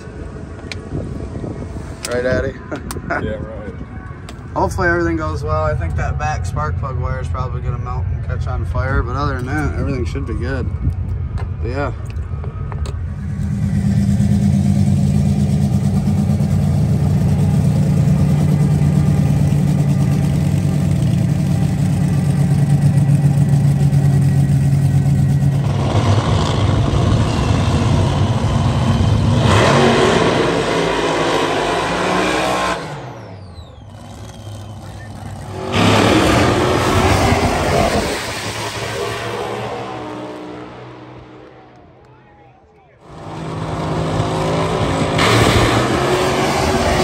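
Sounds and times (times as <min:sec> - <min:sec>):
engine drone: 0:05.4 - 0:42.0, 0:43.0 - 0:47.0
rough loud engine noise: 0:11.4 - 0:41.8, 0:43.0 - 0:47.0.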